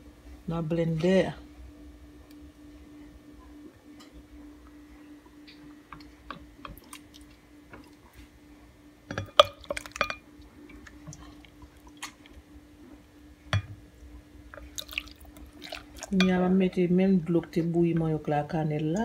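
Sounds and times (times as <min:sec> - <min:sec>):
liquid dripping and plopping: 0:14.5 - 0:16.2.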